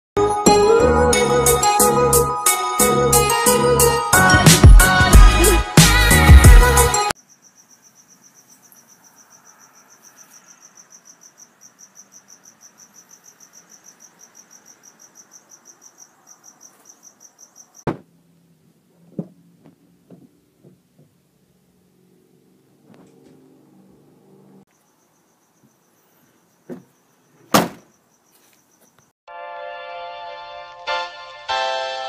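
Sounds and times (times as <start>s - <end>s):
cricket chirping: 7.2s - 17.9s, 24.6s - 29.2s
faint knocks: 19.1s - 21.2s.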